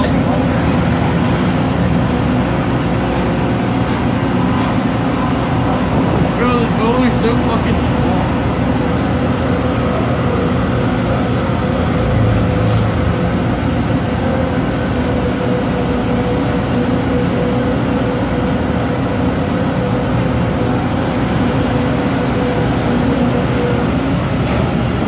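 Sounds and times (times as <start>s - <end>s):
water noise: 0.0s - 0.5s
boat engine droning: 0.0s - 25.0s
wind: 0.0s - 25.0s.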